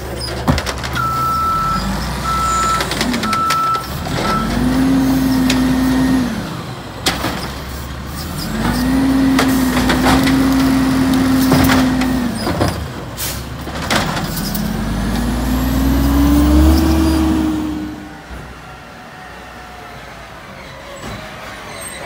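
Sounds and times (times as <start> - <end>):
knocks and clunks of cart and arm: 0.0 - 1.5, 8.5 - 14.7
garbage truck diesel engine revving: 0.0 - 20.6.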